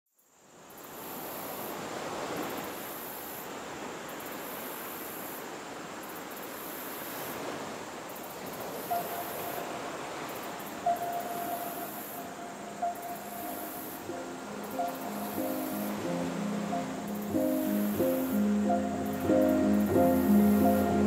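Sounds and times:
wind: 0.1 - 21.0
sea surf: 0.8 - 21.0
thin steady tone: 8.3 - 21.0.

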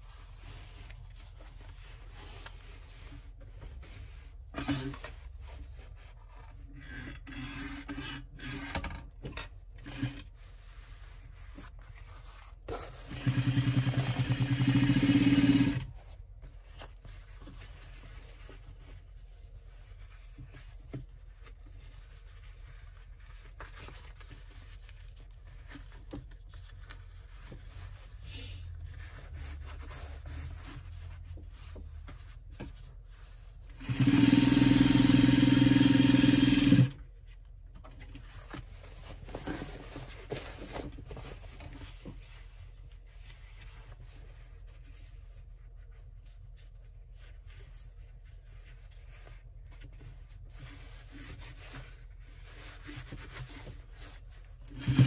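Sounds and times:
fabric handling: 0.0 - 6.8, 10.2 - 34.9
sewing machine stitching: 13.0 - 15.9, 33.8 - 37.0, 54.7 - 55.0.

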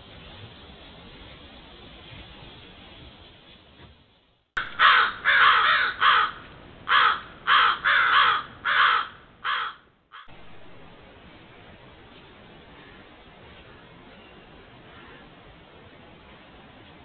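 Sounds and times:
crow cawing: 4.6 - 10.3, 14.9 - 15.3.

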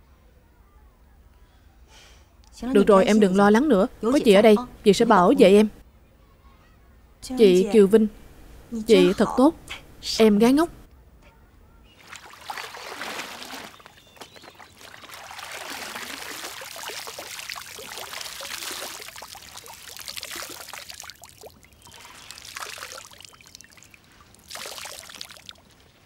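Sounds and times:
water pouring and splashing: 12.0 - 26.0.

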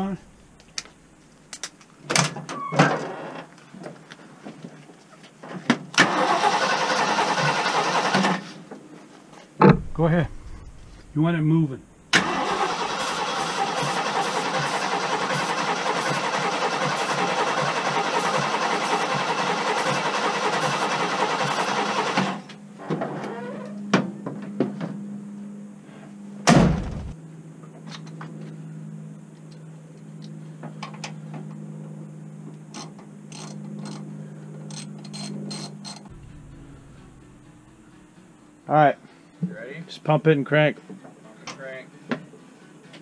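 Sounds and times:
low steady hum: 0.0 - 1.8, 9.5 - 13.1, 22.6 - 39.4
starter motor cranking engine: 6.0 - 8.5, 12.1 - 22.5.

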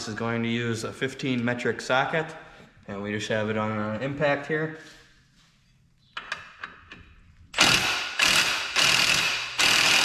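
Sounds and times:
impact wrench hammering: 7.6 - 10.0.

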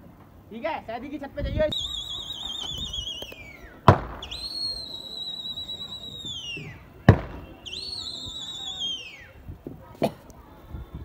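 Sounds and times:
long high whistle: 1.7 - 9.5
sharp cracks: 2.5 - 5.2, 6.3 - 8.1.

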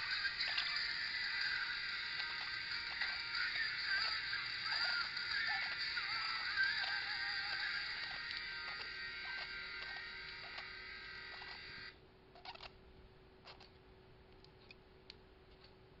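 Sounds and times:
faint metalcore song: 0.0 - 11.9
faint steady hum: 0.0 - 16.0.

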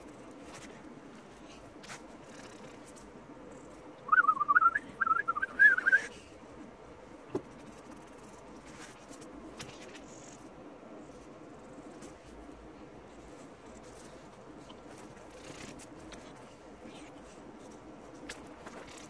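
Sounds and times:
warbling whistle: 4.1 - 6.1.

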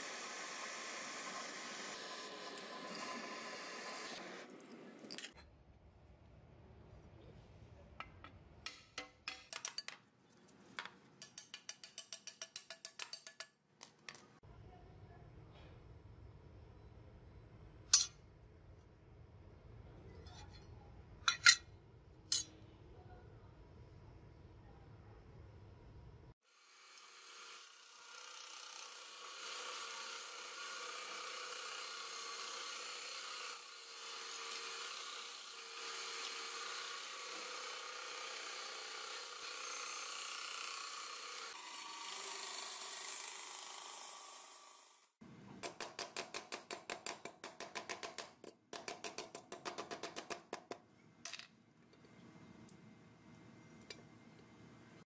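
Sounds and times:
bandsaw cutting wood: 0.0 - 4.4, 26.6 - 45.1.

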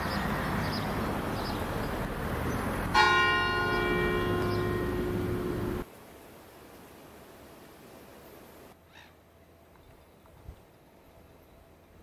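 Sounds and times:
background hiss: 0.9 - 12.0
church bell ringing: 2.9 - 5.8.

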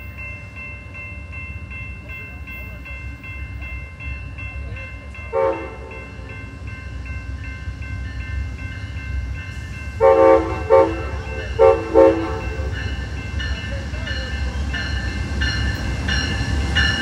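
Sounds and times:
diesel locomotive engine rumble: 0.0 - 17.0
locomotive bell dinging: 0.0 - 17.0
train horn blasts: 5.3 - 6.2, 10.0 - 12.7.

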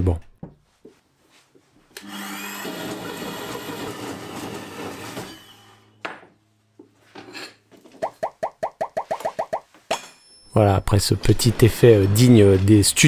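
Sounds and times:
band saw whining: 2.0 - 5.9, 10.2 - 13.0.

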